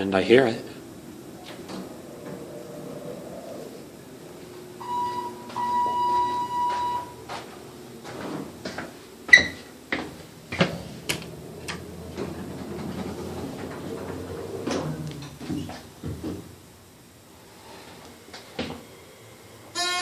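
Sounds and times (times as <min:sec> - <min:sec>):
elevator signal beeps: 0:04.8 - 0:07.3, 0:09.3 - 0:09.6.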